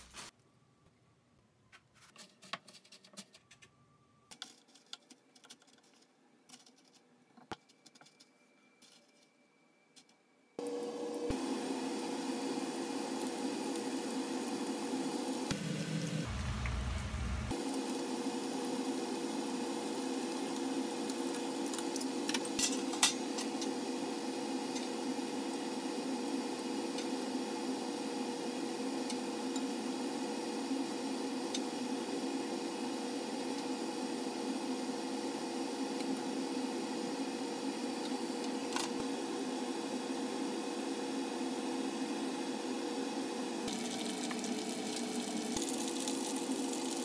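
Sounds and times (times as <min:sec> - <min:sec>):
food deep-frying in oil: 0:11.3 - 0:34.8, 0:43.6 - 0:47.0
low hum: 0:15.5 - 0:17.5.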